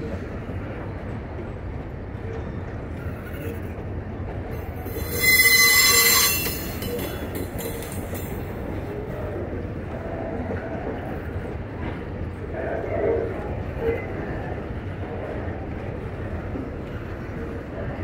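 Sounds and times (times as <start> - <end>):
freight train rumbling past: 0.0 - 18.0
train wheel squeal: 4.6 - 8.6.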